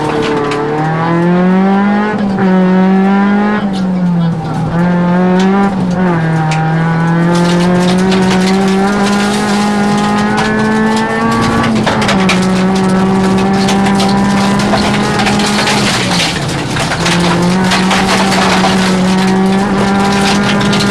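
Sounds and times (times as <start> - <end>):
rally car engine at high revs: 0.0 - 20.9
gravel pelting underbody: 4.8 - 20.9.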